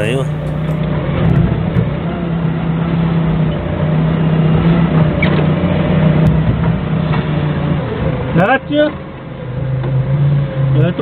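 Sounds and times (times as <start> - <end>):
forklift engine running: 0.0 - 0.8.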